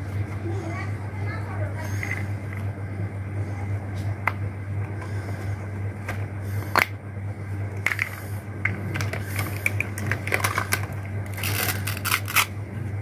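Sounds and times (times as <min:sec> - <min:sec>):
plastic toy pieces clattering: 0:08.9 - 0:12.5.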